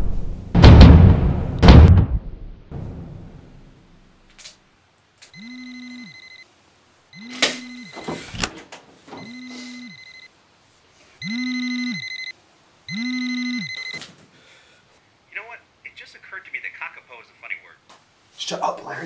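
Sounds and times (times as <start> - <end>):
electronic phone ringtone: 5.3 - 6.4, 7.1 - 8.0, 9.2 - 10.3, 11.2 - 12.3, 12.9 - 14.0.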